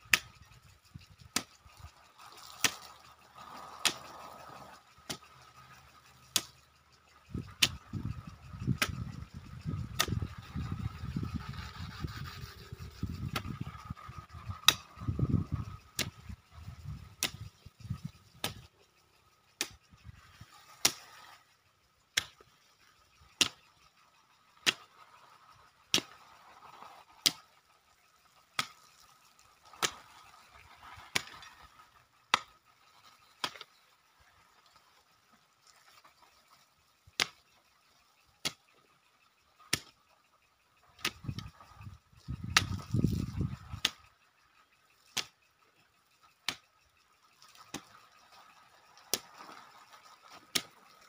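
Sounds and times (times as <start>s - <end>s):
hoe chopping into soil: 2.4s - 2.9s, 3.8s - 4.0s, 33.4s - 33.7s, 50.5s - 50.8s.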